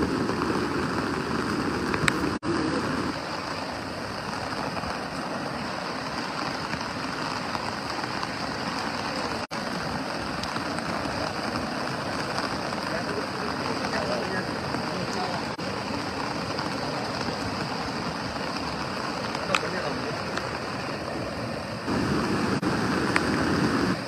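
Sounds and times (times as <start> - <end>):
heavy rain on street: 0.0 - 24.0.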